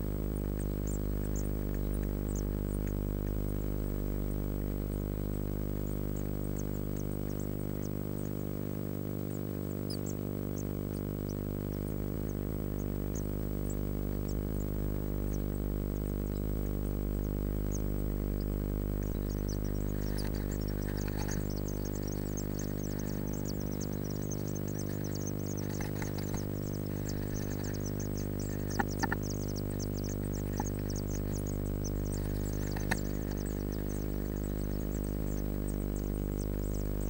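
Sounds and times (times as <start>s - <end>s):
steady electrical hum: 0.0s - 37.0s
taps and scratches in nest: 9.3s - 37.0s
nestlings cheeping high-pitched: 9.7s - 37.0s.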